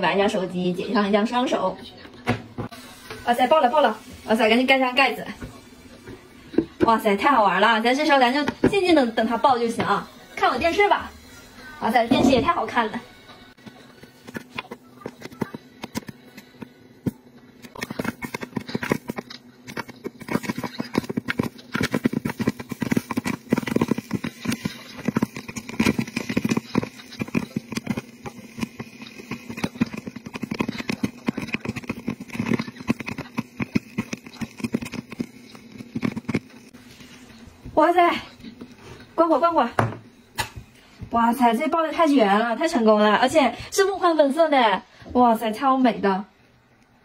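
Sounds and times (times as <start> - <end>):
popcorn popping: 2.6 - 11.2, 11.8 - 42.0
stirring motor hum: 13.6 - 38.8.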